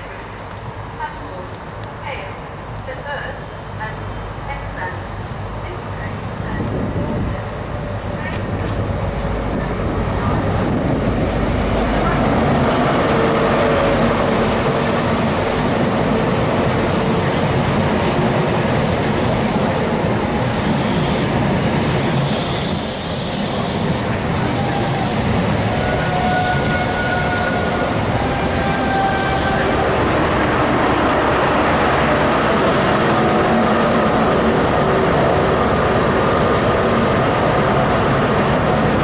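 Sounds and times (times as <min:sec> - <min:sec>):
diesel train rumbling past: 0:00.0 - 0:39.0
hissing bursts: 0:18.5 - 0:25.6.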